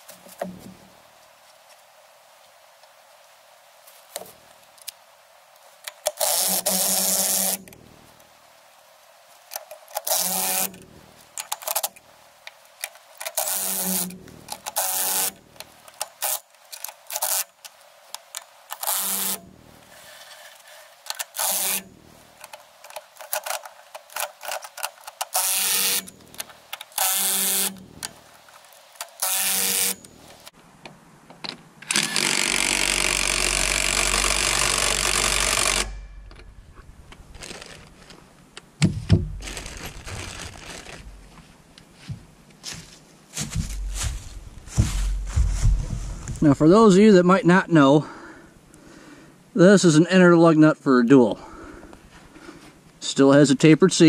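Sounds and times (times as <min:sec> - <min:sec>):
impact wrench spinning lug nuts: 0:21.1 - 0:22.6, 0:24.2 - 0:28.2, 0:31.9 - 0:36.2.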